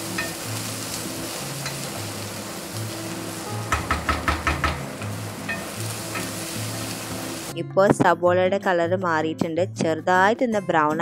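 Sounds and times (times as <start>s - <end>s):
spatula striking a pan: 0.0s - 0.5s, 1.6s - 2.0s, 3.5s - 6.9s
onions sizzling in oil: 0.0s - 7.6s.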